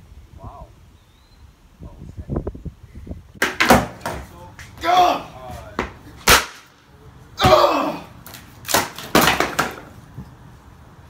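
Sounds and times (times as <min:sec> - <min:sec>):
skateboard clacking on concrete: 0:03.4 - 0:04.3, 0:08.3 - 0:10.0.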